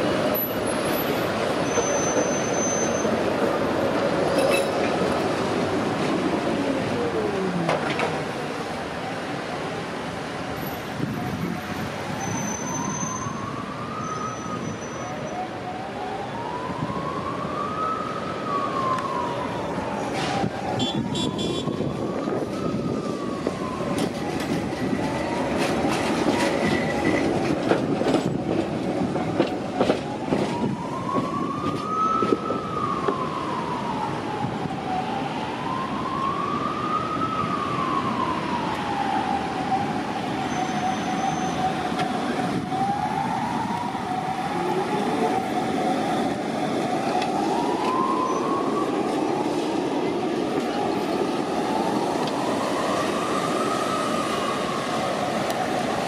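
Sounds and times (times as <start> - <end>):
city traffic: 0.0 - 56.0
siren wailing: 12.2 - 27.2, 29.8 - 56.0
tram wheels clicking on rails: 23.8 - 33.2.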